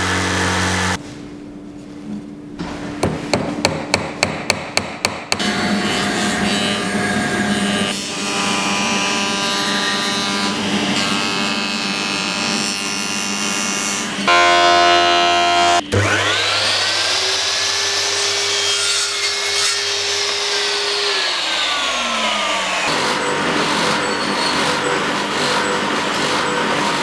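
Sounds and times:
hammer tapping a nail: 3.0s - 5.4s.

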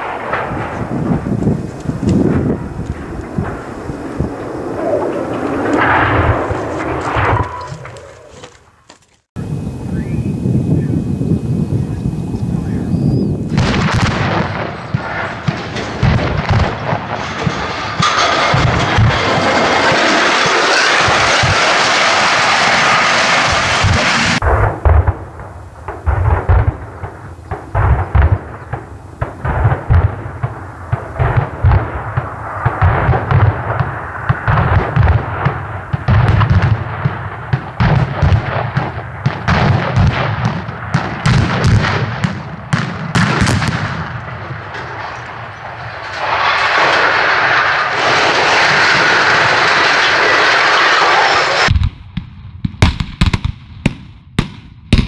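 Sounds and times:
steady rushing noise: 0.0s - 8.5s
explosive charges cracking and thudding: 0.0s - 8.7s, 13.5s - 52.2s.

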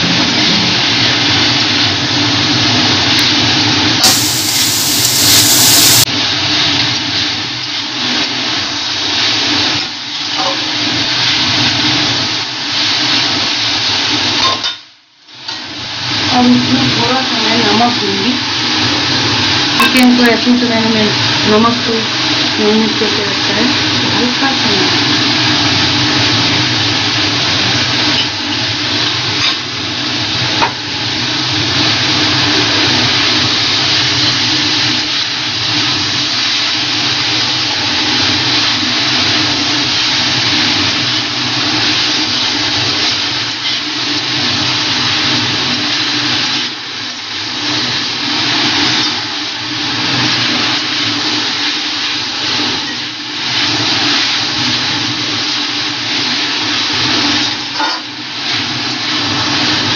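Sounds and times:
low hum: 0.0s - 1.8s
food sizzling in a pan: 0.1s - 6.1s, 15.4s - 59.9s.

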